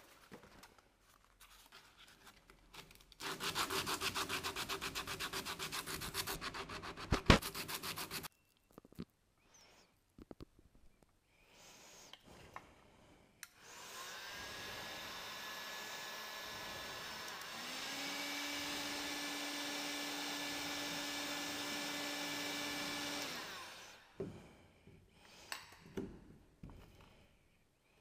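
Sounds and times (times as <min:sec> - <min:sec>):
heat gun fan whirring: 0:13.5 - 0:24.1.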